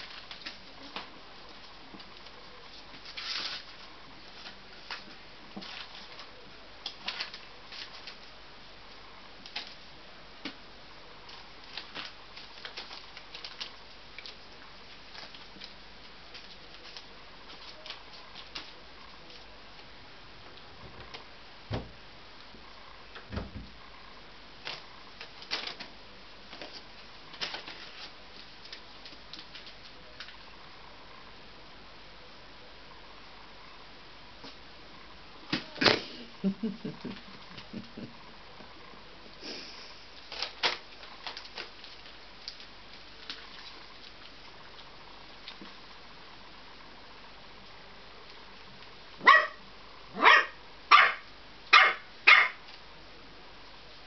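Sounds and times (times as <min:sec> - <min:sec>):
puppies rustling in bedding: 0:00.0 - 0:08.4.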